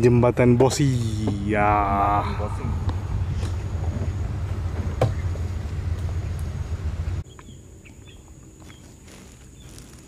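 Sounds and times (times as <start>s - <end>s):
boat motor rumbling: 1.3s - 7.2s.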